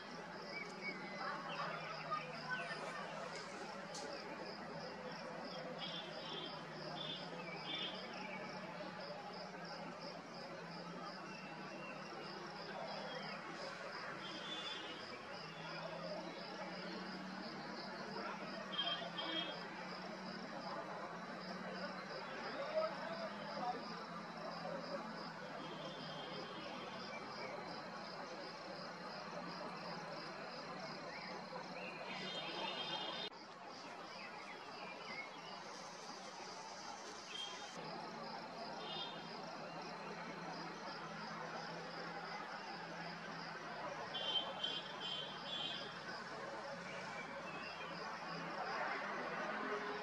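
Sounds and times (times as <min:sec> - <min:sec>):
cricket chirping: 0:00.0 - 0:50.0
continuous hiss: 0:32.0 - 0:48.5
night ambience hiss: 0:35.2 - 0:37.8.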